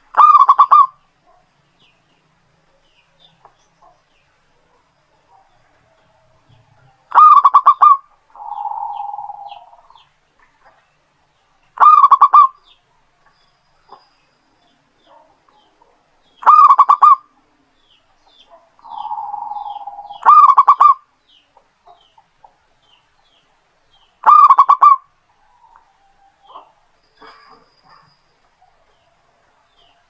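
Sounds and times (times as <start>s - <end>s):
small birds chirping: 0.0s - 30.0s
dove cooing: 0.1s - 1.4s, 6.7s - 10.0s, 11.8s - 12.6s, 15.0s - 17.3s, 18.5s - 21.0s, 24.2s - 28.1s.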